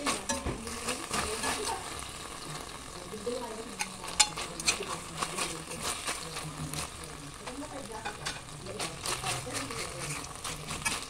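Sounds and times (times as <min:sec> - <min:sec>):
metal tongs clinking on pan: 0:00.0 - 0:01.7, 0:03.7 - 0:06.8, 0:07.8 - 0:11.0
liver sizzling in a wok: 0:00.0 - 0:11.0.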